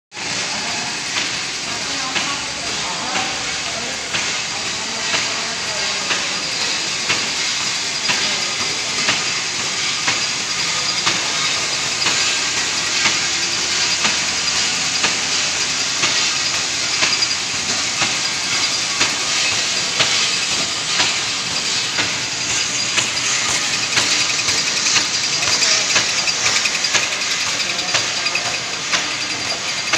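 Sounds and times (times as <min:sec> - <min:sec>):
paper cutting machine clatter: 0:00.2 - 0:29.9
sharp machine click: 0:07.1 - 0:29.9.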